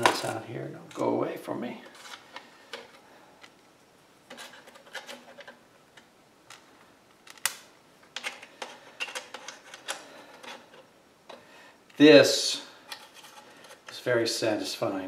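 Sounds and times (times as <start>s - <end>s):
clicks of small parts being handled: 4.3s - 11.4s.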